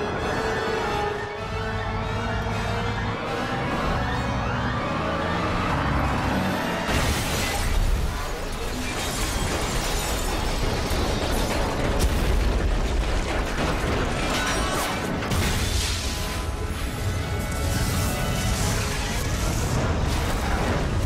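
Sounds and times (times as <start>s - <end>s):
orchestral film music: 0.0s - 8.2s, 14.4s - 21.0s
trucks crashing: 3.0s - 21.0s.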